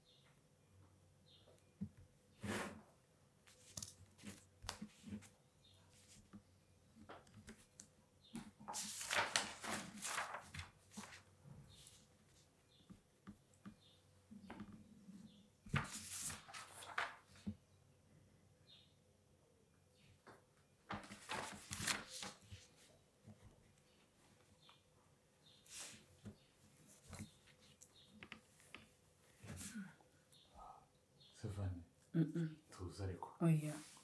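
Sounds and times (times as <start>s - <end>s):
paper rustling: 3.5s - 6.4s, 7.1s - 12.4s, 15.7s - 17.6s, 20.9s - 23.4s.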